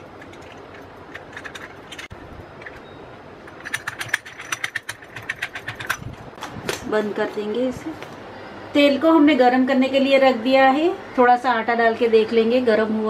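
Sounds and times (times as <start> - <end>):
brass cap screwing clicks and scrapes: 0.0 - 6.1.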